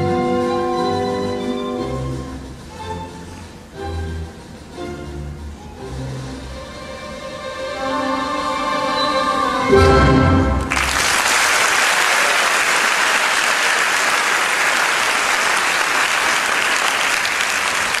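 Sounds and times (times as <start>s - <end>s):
orchestral music: 0.0s - 11.0s
audience applause: 10.6s - 18.0s.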